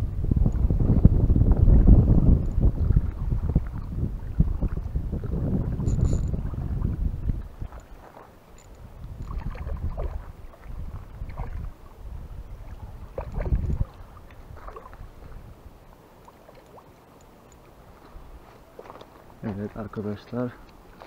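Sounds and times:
wind buffeting microphone: 0:00.0 - 0:15.9
fish splashing in water: 0:12.7 - 0:15.0.

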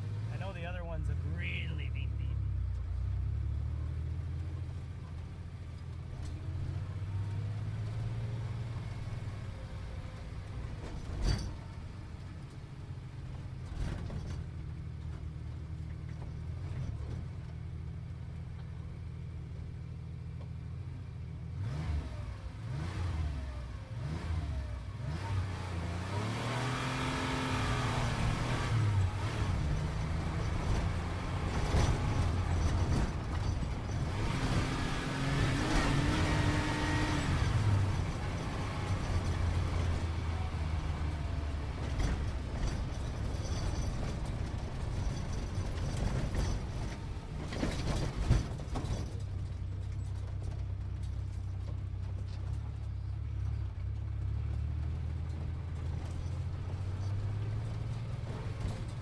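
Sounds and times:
car engine revving: 0:21.6 - 0:42.0.

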